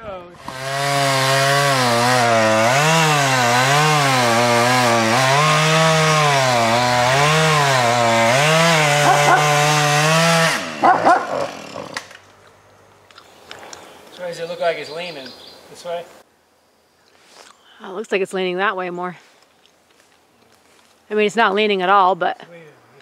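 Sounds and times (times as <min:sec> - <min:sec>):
chainsaw cutting wood: 0:00.4 - 0:12.4.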